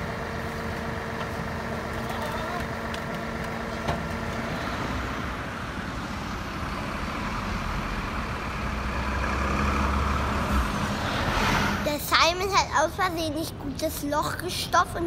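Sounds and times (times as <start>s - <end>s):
truck engine rumbling: 0.0s - 15.0s.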